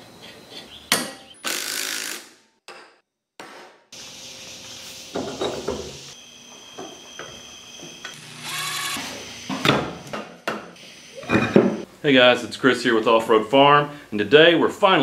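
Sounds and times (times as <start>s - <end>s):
cordless impact tool running: 8.1s - 9.2s.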